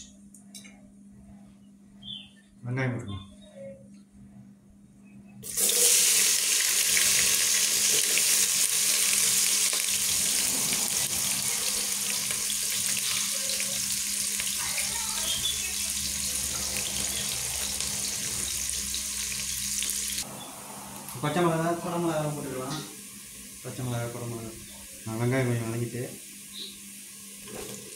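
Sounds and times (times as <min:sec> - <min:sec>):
onions sizzling in hot oil: 0:05.4 - 0:20.3, 0:21.8 - 0:27.9.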